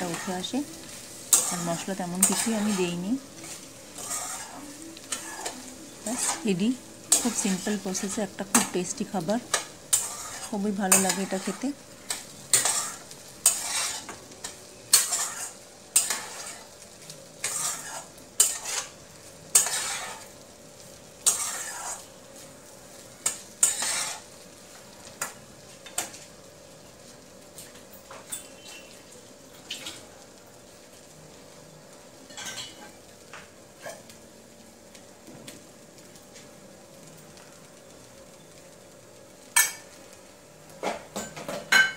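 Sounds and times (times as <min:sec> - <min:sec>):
metal spoon stirring rice: 0:00.0 - 0:16.8, 0:17.4 - 0:20.4, 0:21.2 - 0:22.1, 0:23.2 - 0:24.3.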